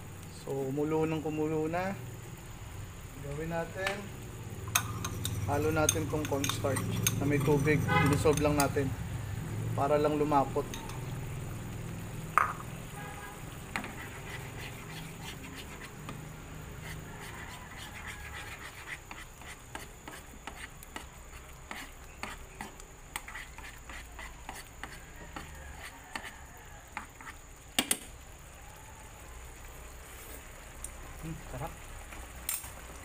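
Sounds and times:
metal spoon stirring in pan: 4.7 - 9.0, 10.1 - 11.4, 12.4 - 26.4
sauce bubbling with pops: 11.0 - 12.8, 15.9 - 16.8.

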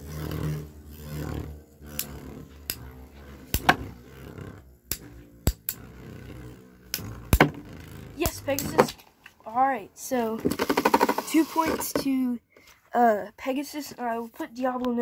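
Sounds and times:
spinning tops whirring: 0.0 - 12.2.

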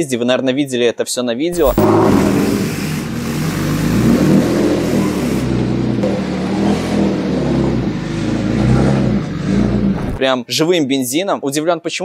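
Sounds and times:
car engine running at tailpipe: 1.6 - 10.2.

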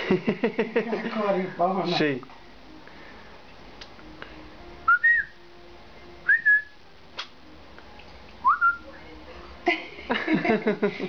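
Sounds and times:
person whistling rising notes: 4.9 - 5.4, 6.2 - 6.8, 8.4 - 8.9.

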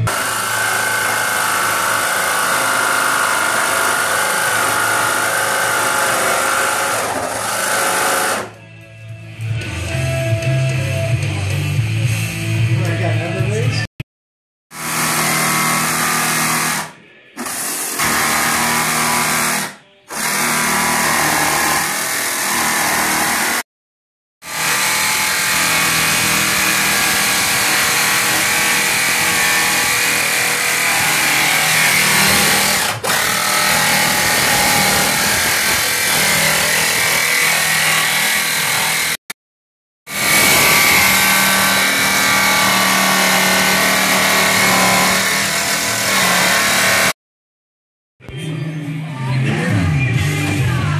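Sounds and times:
jigsaw cutting sheet metal: 0.0 - 8.6, 14.7 - 23.7, 24.4 - 39.4, 40.1 - 47.2.

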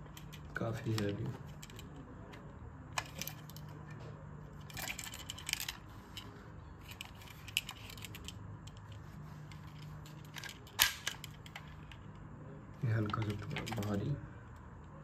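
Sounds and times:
toy pistol clicking and rattling: 4.6 - 5.9, 6.8 - 8.9, 9.7 - 12.1.

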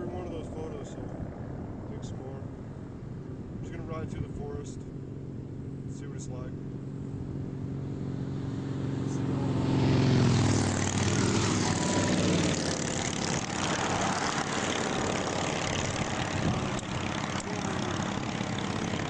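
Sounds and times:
steady rushing noise: 0.0 - 19.0
vehicle engine passing: 4.8 - 19.0.

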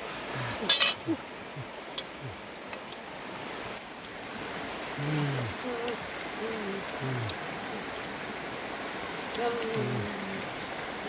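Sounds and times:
river rushing over rocks: 0.0 - 11.0
low falling murmurs: 5.0 - 7.9, 9.3 - 10.6.

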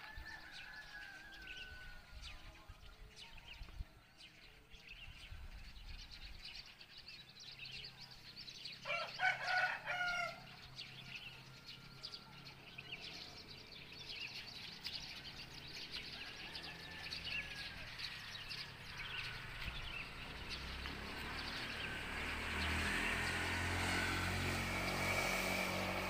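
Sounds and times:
rooster crowing: 0.0 - 2.1, 8.8 - 10.6, 16.2 - 18.3
small birds chirping: 0.0 - 26.0.

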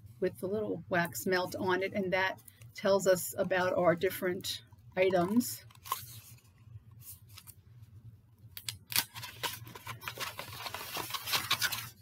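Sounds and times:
paper crinkling and rustling: 8.9 - 12.0.

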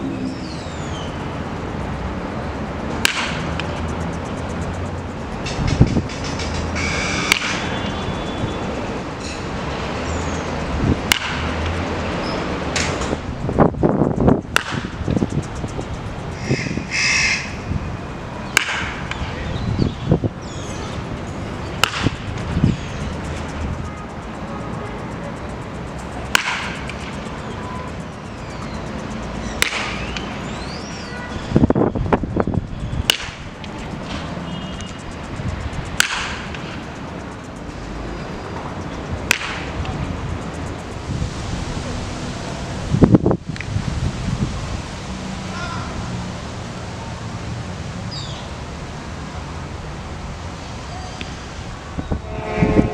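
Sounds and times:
steady background noise: 0.0 - 52.9
baseball bat hitting ball: 3.0 - 3.7, 7.3 - 7.6, 11.1 - 11.5, 14.5 - 14.8, 18.5 - 19.2, 21.8 - 22.2, 26.3 - 26.8, 29.6 - 30.0, 33.1 - 33.4, 36.0 - 36.6, 39.3 - 39.7.

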